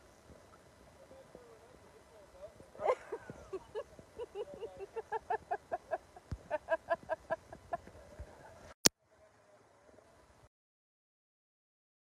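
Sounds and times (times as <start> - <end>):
person laughing hard: 2.8 - 7.9.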